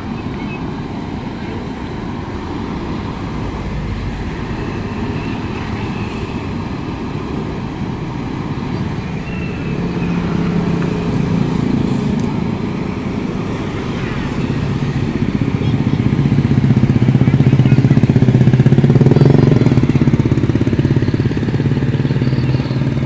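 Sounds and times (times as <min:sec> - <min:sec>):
excavator diesel engine running: 0:00.0 - 0:23.0
motor scooters passing: 0:00.0 - 0:23.0.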